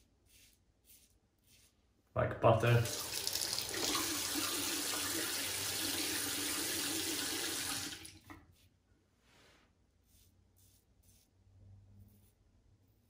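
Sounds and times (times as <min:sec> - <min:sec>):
tap water pouring into sink: 0:02.8 - 0:08.3.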